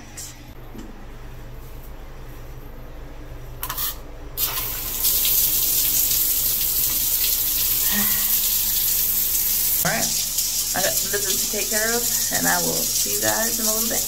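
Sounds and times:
shower spraying on tile: 0:04.4 - 0:14.0.

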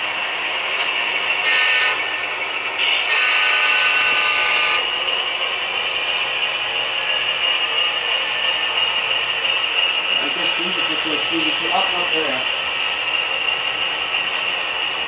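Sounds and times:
model train horn through small speaker: 0:01.4 - 0:02.1, 0:02.8 - 0:04.9.

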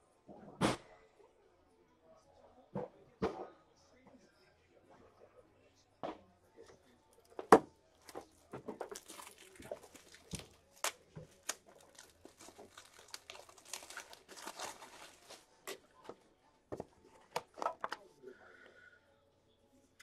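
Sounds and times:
plastic wrapping crinkling: 0:08.0 - 0:16.0.

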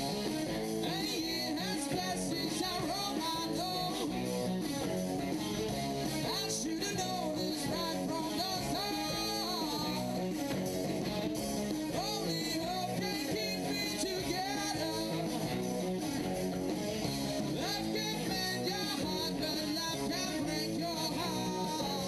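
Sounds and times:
electric guitar bending notes: 0:00.0 - 0:22.0
rock band playing: 0:00.0 - 0:22.0.

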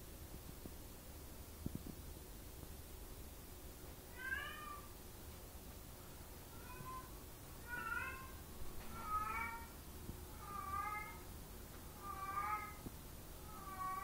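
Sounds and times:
kitten meowing: 0:06.6 - 0:09.7, 0:10.4 - 0:11.2, 0:12.0 - 0:12.8.

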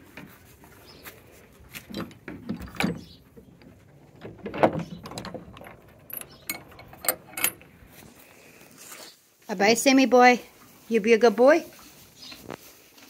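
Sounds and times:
metal chain and latch clinking: 0:01.8 - 0:08.1.

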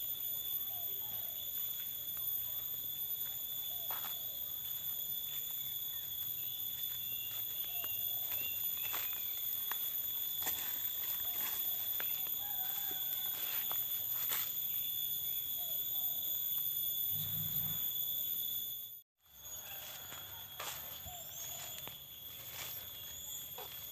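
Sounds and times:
insect drone: 0:00.0 - 0:23.9
footsteps on leaf litter: 0:06.8 - 0:14.6, 0:19.6 - 0:23.9.

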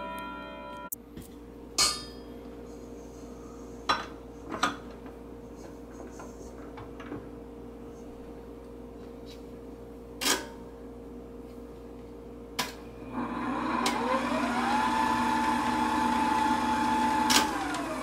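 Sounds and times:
stand mixer motor whine: 0:13.0 - 0:18.0.

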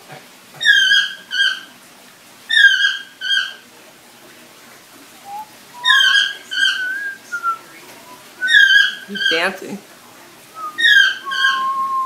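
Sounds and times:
parrot calling: 0:00.6 - 0:01.7, 0:02.5 - 0:03.6, 0:05.2 - 0:09.6, 0:10.6 - 0:12.0.

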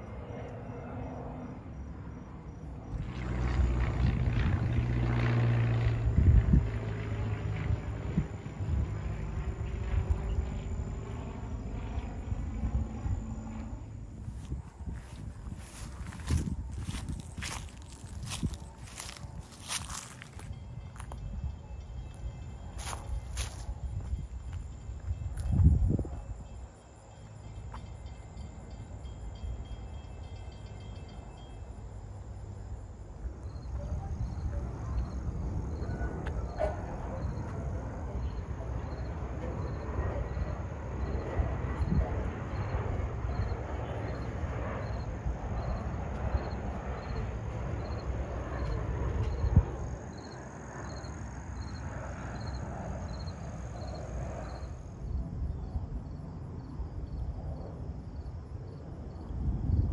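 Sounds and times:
insects chirping: 0:00.0 - 0:59.9
propeller plane flying over: 0:00.0 - 0:59.9
low rumble: 0:02.2 - 0:26.3.

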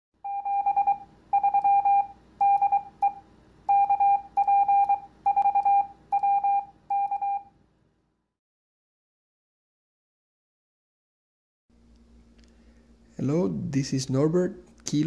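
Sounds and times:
morse code beeps: 0:00.2 - 0:07.5.

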